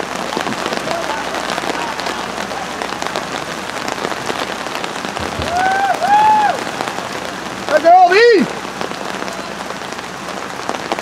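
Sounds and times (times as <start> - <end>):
heavy rain falling: 0.0 - 11.0
person shouting: 5.4 - 6.6.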